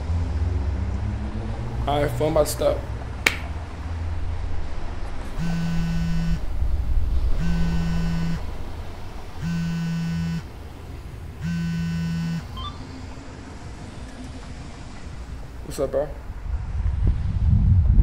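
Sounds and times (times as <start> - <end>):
mobile phone buzzing: 5.3 - 6.5, 7.3 - 8.5, 9.4 - 10.5, 11.4 - 12.8.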